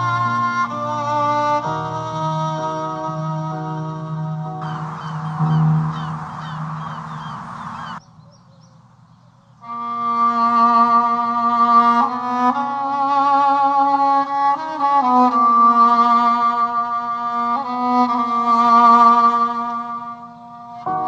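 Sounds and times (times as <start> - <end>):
violin and cello melody: 0.0 - 8.0, 9.6 - 21.0
seagulls calling: 4.6 - 8.8.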